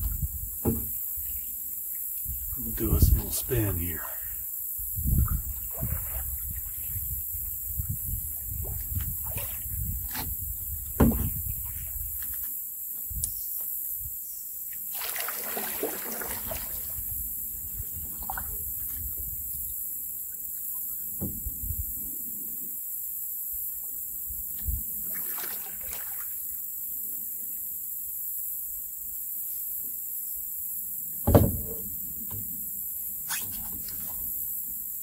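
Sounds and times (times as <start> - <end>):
knock on canoe hull: 0.6 - 1.0, 11.0 - 11.4, 31.2 - 32.5
water rushing: 2.6 - 4.0.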